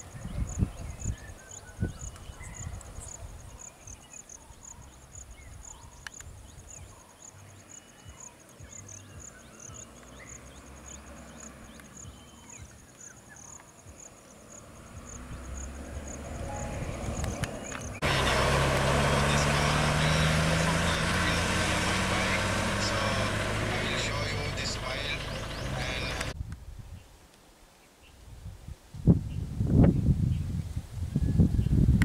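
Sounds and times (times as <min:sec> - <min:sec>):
bird chirps: 0:00.0 - 0:14.1
insects chirping: 0:00.0 - 0:26.3
bus engine: 0:14.4 - 0:26.4
low rumble: 0:14.8 - 0:19.8.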